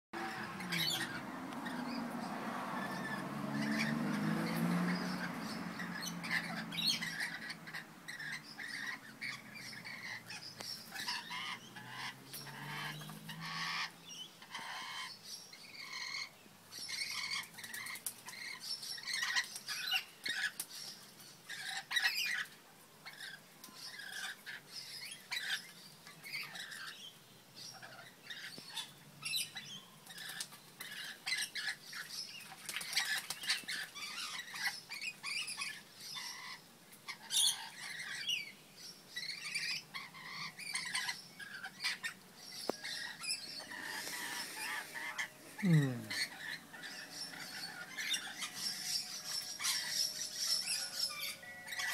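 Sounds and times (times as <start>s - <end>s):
lorikeets screeching: 0.2s - 32.2s, 32.8s - 51.9s
wings flapping and splashing water: 32.0s - 34.5s.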